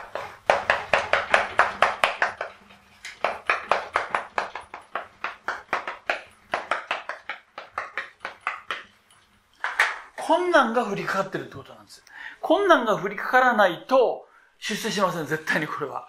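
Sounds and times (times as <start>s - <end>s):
chalk writing on blackboard: 0.0s - 1.5s.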